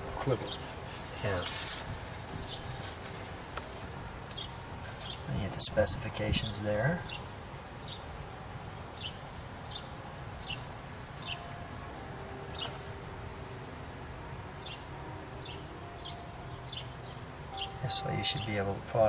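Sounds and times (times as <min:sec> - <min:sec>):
high falling chirps: 0:14.6 - 0:18.9.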